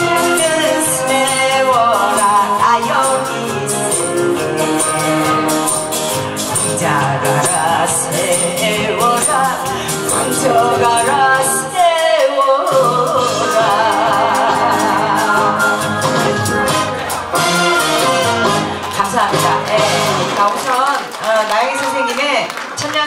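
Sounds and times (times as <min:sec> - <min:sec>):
woman singing into microphone: 0:00.0 - 0:05.9, 0:06.5 - 0:17.0
backing track with steady beat: 0:00.0 - 0:20.9.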